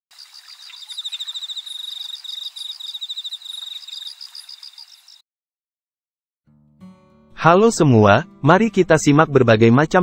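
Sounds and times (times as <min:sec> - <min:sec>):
crickets trilling: 0:00.1 - 0:05.2
higher cricket chirp: 0:00.1 - 0:05.2.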